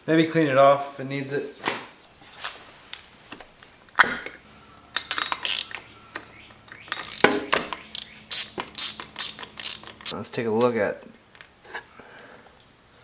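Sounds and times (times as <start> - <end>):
socket wrench clicks and rattles: 5.0 - 10.2.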